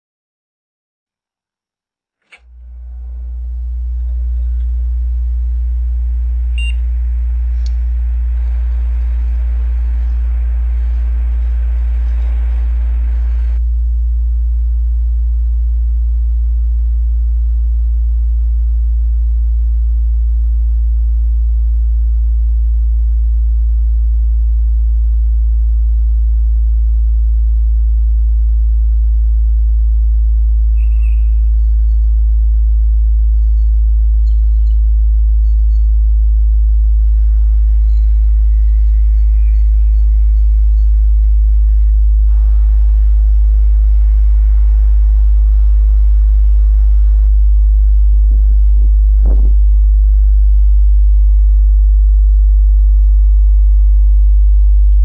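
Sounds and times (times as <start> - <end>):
deep electrical hum: 2.2 - 55.0.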